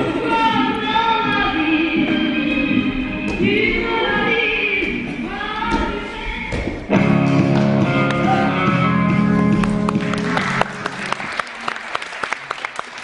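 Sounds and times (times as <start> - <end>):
audience applause: 9.6 - 13.0.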